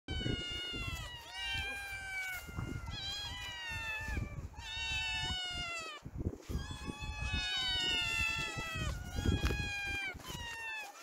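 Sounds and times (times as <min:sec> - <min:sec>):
kittens meowing: 0:00.1 - 0:11.0.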